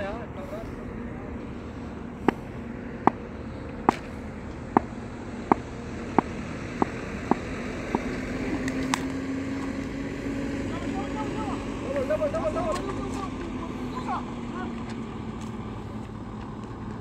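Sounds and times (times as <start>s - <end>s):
steady low hum: 0.0s - 17.0s
cricket bat striking ball: 4.7s - 9.1s.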